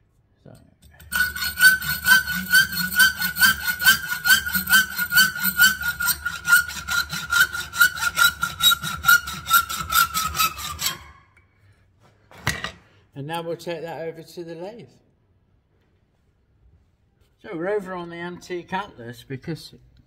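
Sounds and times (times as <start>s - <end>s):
hacksaw cutting metal bolt: 0.8s - 11.2s.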